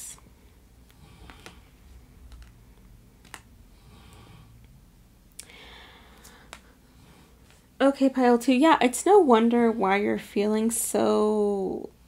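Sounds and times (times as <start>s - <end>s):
fingernails tapping card edges: 1.2s - 1.6s, 3.2s - 3.5s.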